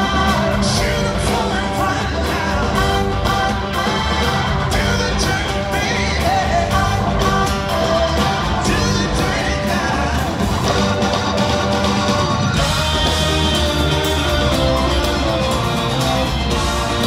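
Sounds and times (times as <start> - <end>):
person singing: 0.0 - 11.2
bass guitar: 0.0 - 17.0
drums: 0.0 - 17.0
keyboards: 0.0 - 17.0.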